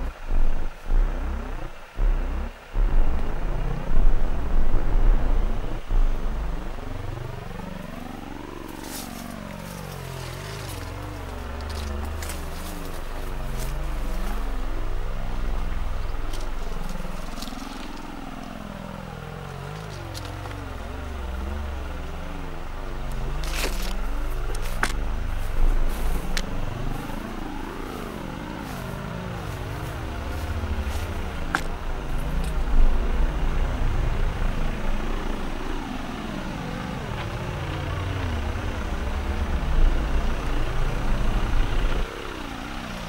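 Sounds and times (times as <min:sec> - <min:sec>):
deep rumble: 0:00.0 - 0:43.0
sharp clicks and crackles: 0:23.0 - 0:27.2.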